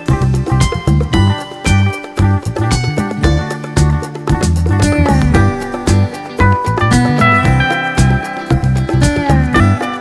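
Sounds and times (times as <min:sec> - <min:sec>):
plucked guitar-like notes: 0:00.0 - 0:10.0
bass note beat: 0:02.6 - 0:09.8.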